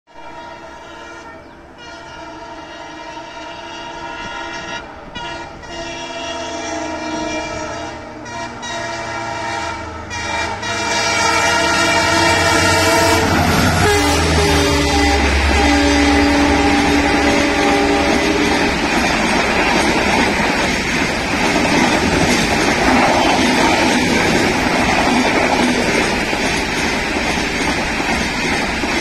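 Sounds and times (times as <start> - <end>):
locomotive horn blasts: 0.1 - 18.9
train rumble: 0.1 - 29.0.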